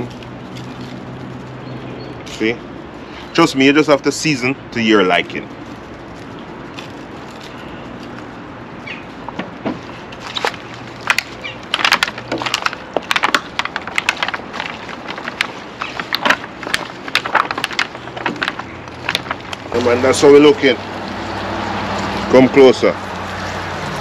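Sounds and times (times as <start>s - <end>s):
foil pan crinkling and crackling: 9.8s - 21.4s.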